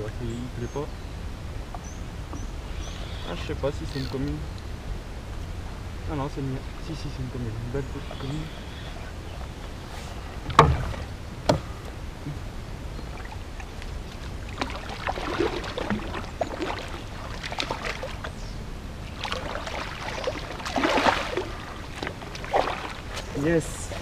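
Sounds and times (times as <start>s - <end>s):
sharp knocks: 10.5s - 11.7s
fish splashing in water: 13.1s - 18.4s, 19.1s - 23.4s.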